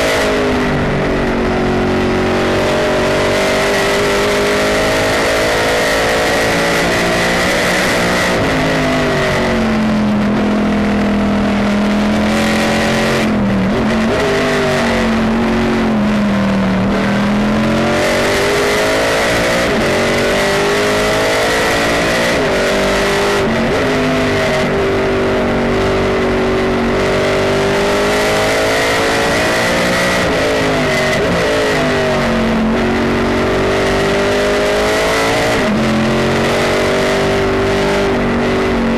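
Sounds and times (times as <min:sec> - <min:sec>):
high whine: 0:00.0 - 0:38.9
race car engine revving: 0:00.0 - 0:38.9.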